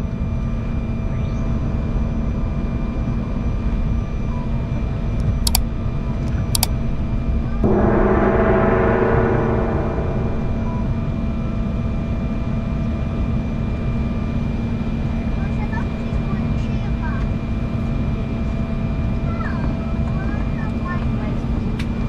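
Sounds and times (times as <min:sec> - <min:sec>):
steady tone with overtones: 0:07.6 - 0:12.1
constant whine: 0:07.6 - 0:12.2
jet engines rumbling: 0:07.6 - 0:12.2.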